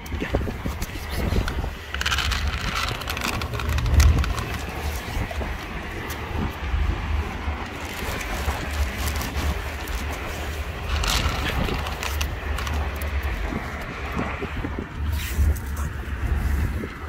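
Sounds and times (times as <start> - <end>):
low outdoor rumble: 0.0 - 17.0
dry kibble rattling onto plastic plate: 0.7 - 6.2, 7.7 - 13.3.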